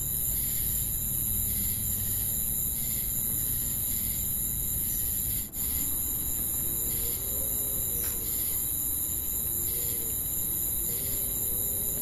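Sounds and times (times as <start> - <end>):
insects trilling: 0.0 - 12.0
pulsing insect chirp: 0.0 - 12.0.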